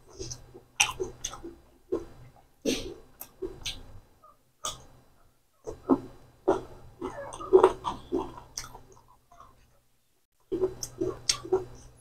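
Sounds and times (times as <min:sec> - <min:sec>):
person chewing and lip smacking: 0:00.0 - 0:02.5, 0:03.1 - 0:04.0, 0:04.6 - 0:05.0, 0:05.7 - 0:09.7, 0:10.5 - 0:12.0.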